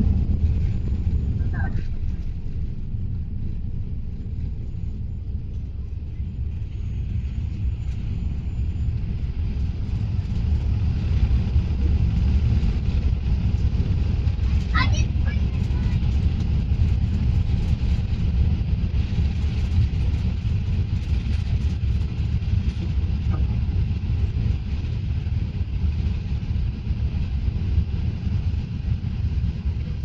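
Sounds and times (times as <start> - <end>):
jet engine noise: 0.0 - 30.0
rush of airflow: 0.0 - 30.0.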